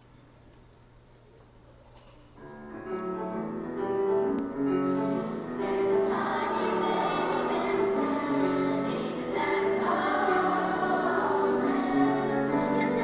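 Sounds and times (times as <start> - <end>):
piano: 2.4 - 13.0
children's chorus singing: 5.3 - 13.0.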